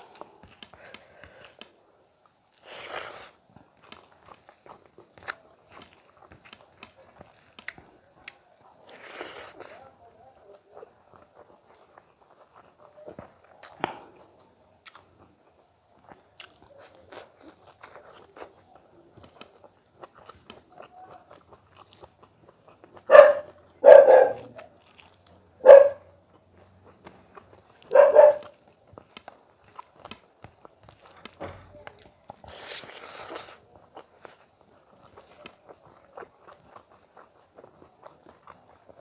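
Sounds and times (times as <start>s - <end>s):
chewing and squelching food: 0.0s - 39.0s
dog barking: 23.0s - 24.6s, 25.6s - 26.1s, 27.9s - 28.5s.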